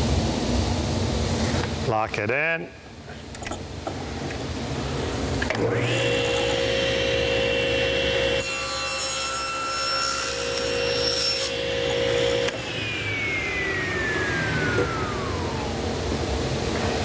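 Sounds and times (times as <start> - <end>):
saw motor whine coasting down: 5.6 - 9.1, 9.8 - 17.0
table saw cutting wood: 5.6 - 17.0.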